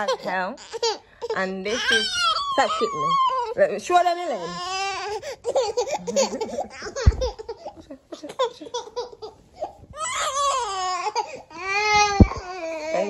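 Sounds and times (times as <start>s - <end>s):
baby crying: 0.0s - 7.8s, 8.7s - 13.0s
low thump: 7.0s - 7.4s, 12.0s - 12.5s.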